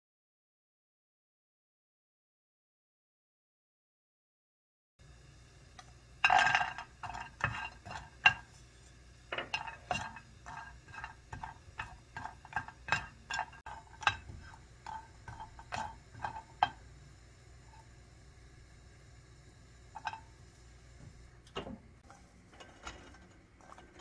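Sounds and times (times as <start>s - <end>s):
spatula clicking and tapping in pan: 5.8s - 8.5s, 9.3s - 17.0s.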